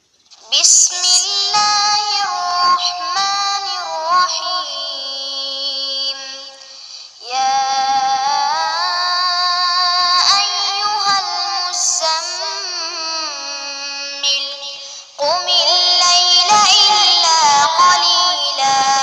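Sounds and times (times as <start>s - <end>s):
processed solo singing voice: 0.4s - 19.0s.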